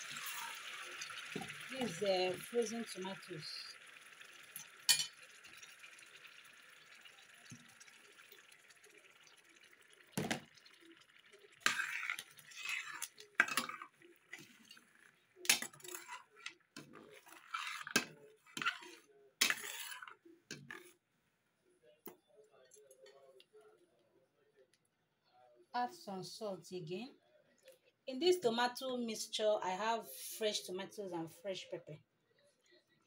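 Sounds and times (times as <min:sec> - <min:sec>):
oil sizzling: 0:00.0 - 0:20.7
spoon clinking on pot: 0:04.9 - 0:05.6
metal spoon scraping pot: 0:11.5 - 0:20.9.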